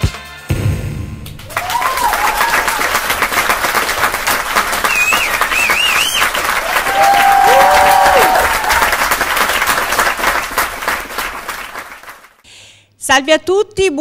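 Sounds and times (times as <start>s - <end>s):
audience applauding: 1.3s - 12.4s
wavering whistles: 4.8s - 9.0s.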